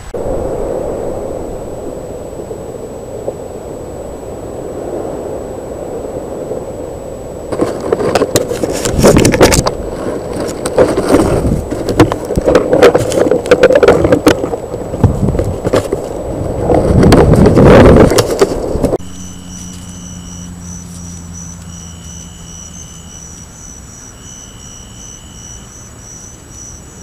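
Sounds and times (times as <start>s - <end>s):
wind noise on microphone: 0.0s - 27.0s
knocks and scrapes on camera: 7.5s - 16.1s.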